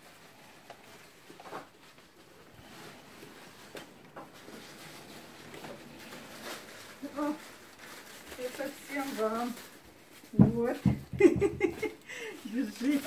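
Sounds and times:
coats rustling: 0:00.0 - 0:13.0
footsteps in a hallway: 0:10.2 - 0:11.8.

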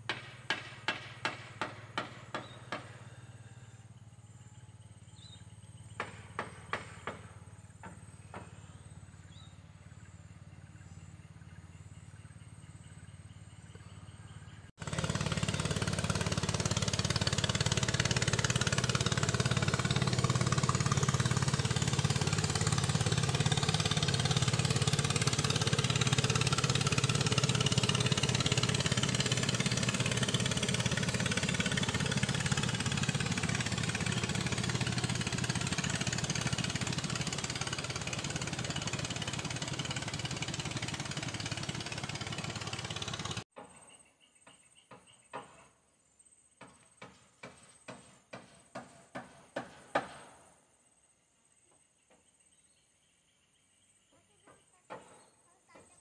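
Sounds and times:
boat engine running: 0:02.4 - 0:43.4.

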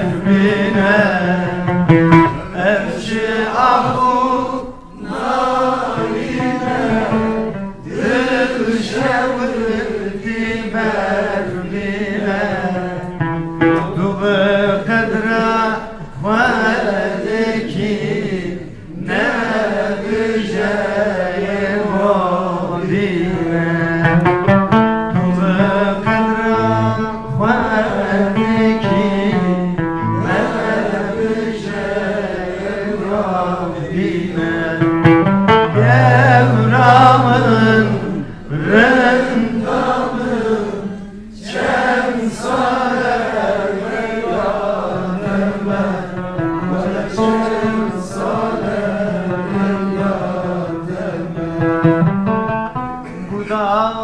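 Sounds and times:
plucked oud: 0:00.0 - 0:04.5, 0:05.8 - 0:09.4, 0:10.6 - 0:15.6, 0:22.8 - 0:32.0, 0:34.0 - 0:40.1, 0:44.7 - 0:53.5
man singing folk song: 0:00.0 - 0:40.4, 0:43.9 - 0:52.4, 0:53.0 - 0:54.0.

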